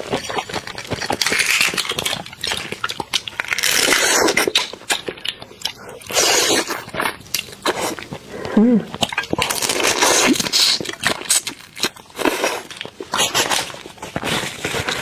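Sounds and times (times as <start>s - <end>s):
prawn shell crackling: 0.0s - 5.0s.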